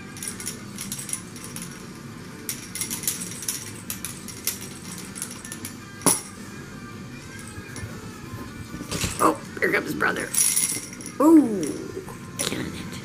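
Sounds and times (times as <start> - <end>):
plastic toy rings clinking: 0.0 - 1.8, 2.5 - 6.4, 10.2 - 11.9.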